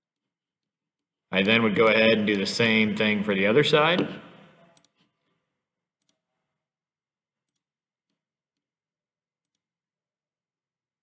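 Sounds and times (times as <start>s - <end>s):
computer mouse clicks: 4.7s - 5.2s, 6.0s - 6.2s.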